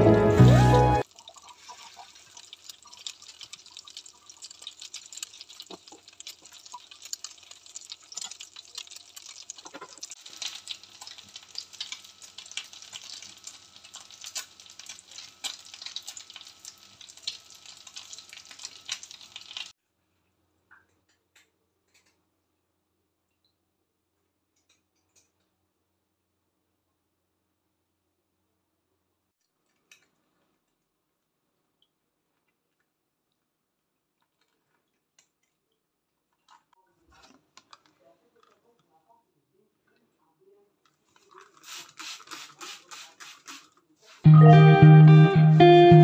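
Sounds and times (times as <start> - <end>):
pastry sizzling in oil: 0.3 - 19.8.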